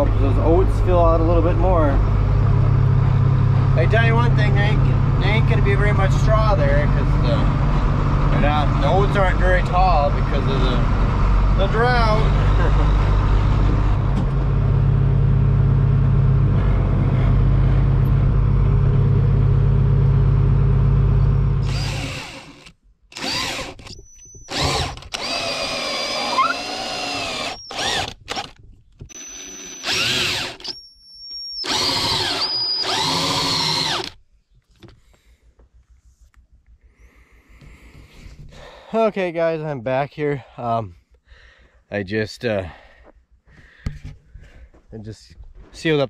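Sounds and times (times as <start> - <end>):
vehicle engine running: 0.0 - 22.2
high machine whine: 29.1 - 34.1.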